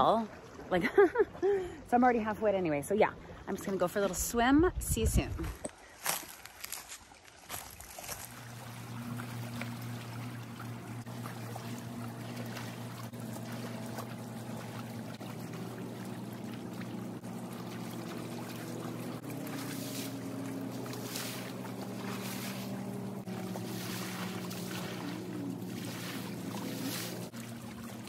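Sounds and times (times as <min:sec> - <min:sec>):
water lapping at shoreline: 0:00.0 - 0:28.0
boat engine drone: 0:08.0 - 0:28.0.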